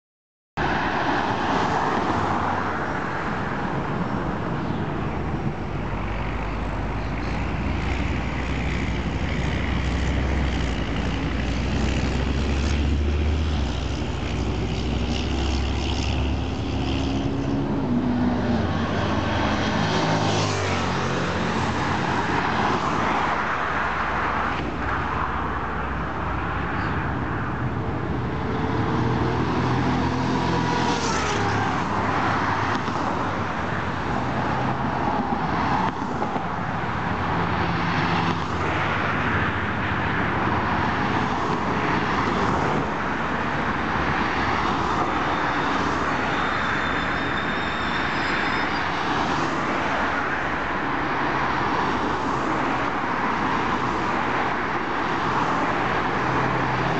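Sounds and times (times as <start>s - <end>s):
cars passing: 0.6s - 56.9s.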